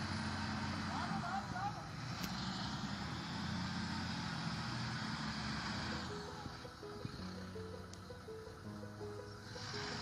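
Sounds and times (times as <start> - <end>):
engine noise: 0.0 - 10.0
background music: 5.1 - 10.0.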